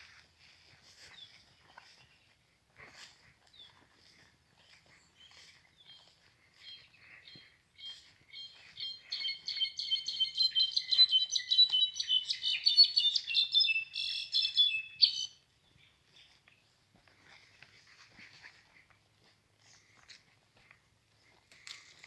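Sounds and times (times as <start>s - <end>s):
bird singing high ringing notes: 8.4s - 15.4s.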